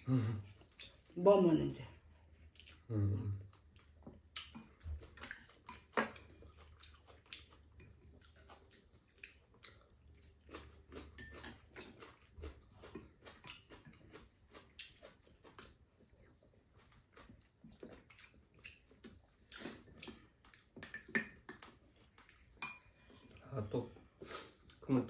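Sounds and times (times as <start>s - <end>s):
faint chewing: 0.0s - 1.2s, 1.9s - 24.9s
spoons tapping against bowls: 22.6s - 23.0s.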